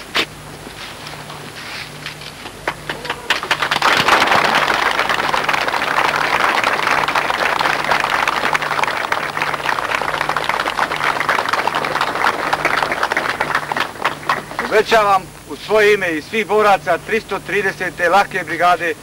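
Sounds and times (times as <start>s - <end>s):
crowd applauding: 2.4s - 15.2s.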